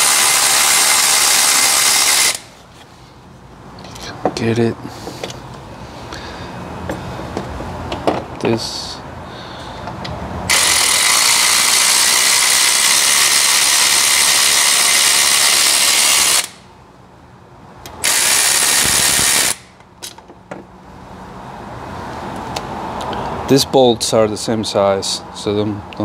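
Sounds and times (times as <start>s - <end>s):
electric ratchet running: 0.0s - 2.6s, 10.5s - 16.7s, 17.9s - 19.8s.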